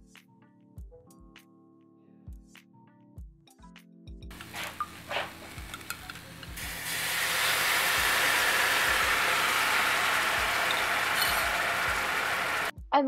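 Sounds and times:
butter crackling: 4.3 - 12.7
liquid sizzling in hot pan: 4.3 - 12.7.

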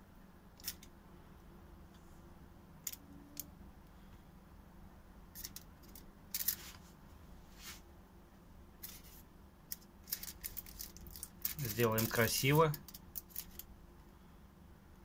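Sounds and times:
faint low hum: 0.0 - 15.0
aluminium foil rustling: 8.8 - 13.6.

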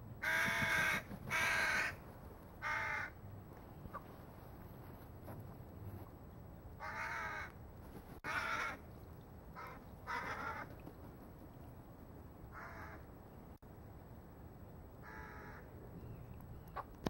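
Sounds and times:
crows cawing: 0.2 - 2.0, 2.6 - 3.2, 6.8 - 7.6, 8.2 - 8.8, 9.6 - 10.7, 12.5 - 13.0, 15.0 - 15.7.

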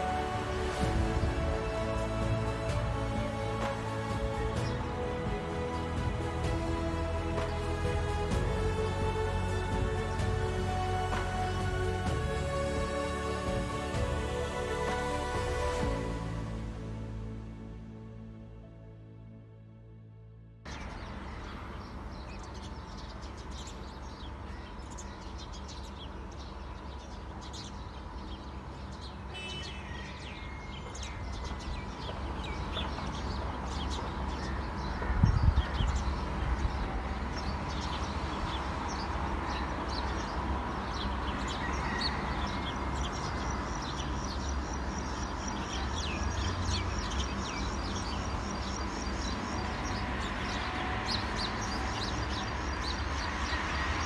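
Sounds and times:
low outdoor rumble: 0.0 - 24.0
small birds chirping: 20.7 - 54.0.

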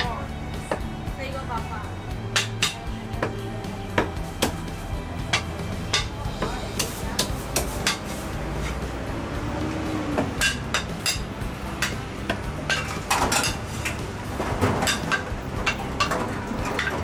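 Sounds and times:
cleaver chopping on wooden block: 4.0 - 4.6
plates and utensils clinking: 10.2 - 17.0.

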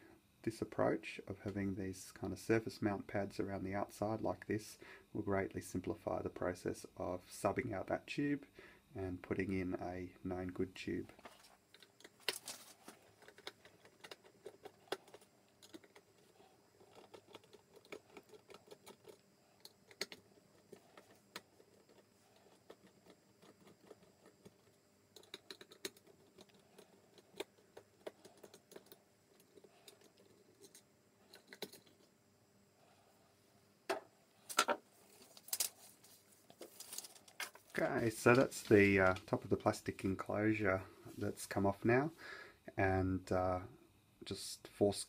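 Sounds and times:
screws being handled: 34.5 - 37.8.

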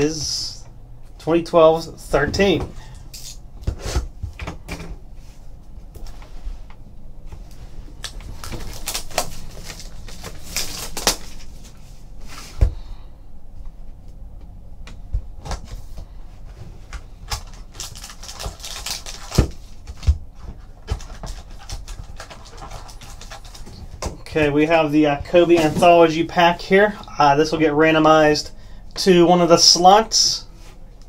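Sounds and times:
plastic wrap crinkling: 7.9 - 11.8, 17.2 - 23.9.

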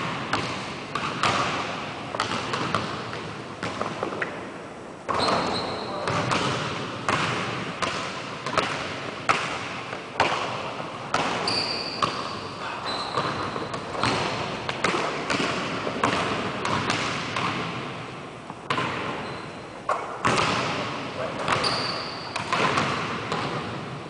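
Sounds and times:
basketball bouncing on hardwood floor: 0.0 - 4.2, 6.1 - 9.6, 13.1 - 17.8, 20.2 - 20.8, 21.4 - 23.7
sneaker squeaks: 5.1 - 6.4, 11.4 - 14.4, 19.1 - 19.9, 21.3 - 22.6.

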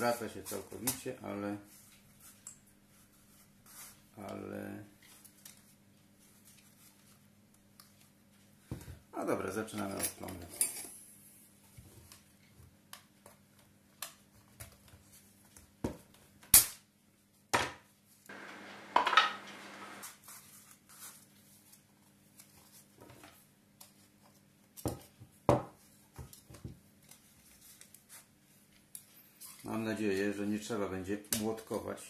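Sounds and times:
scraping on wooden table: 18.3 - 20.0.

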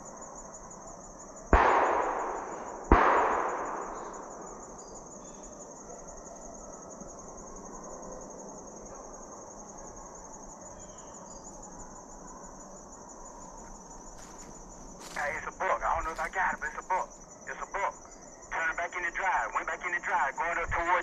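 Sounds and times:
insects trilling: 0.0 - 21.0
distant gunshot echo: 1.5 - 4.9.

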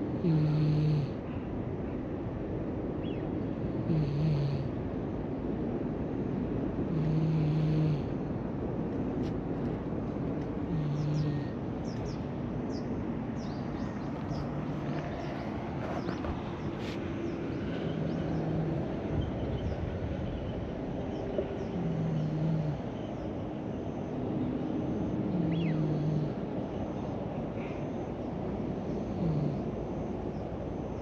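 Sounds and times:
cat snoring: 0.2 - 1.2, 3.8 - 4.7, 6.9 - 8.1, 10.7 - 11.6, 21.8 - 22.9, 25.3 - 26.4, 29.0 - 29.8
faint bird chirps: 25.4 - 26.3.

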